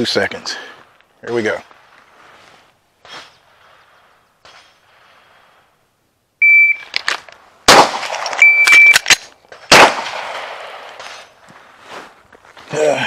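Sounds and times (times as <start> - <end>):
shot timer beep: 6.4 - 6.9, 8.4 - 9.0
loud gunshot with ringing tail: 7.7 - 8.2, 9.7 - 10.8.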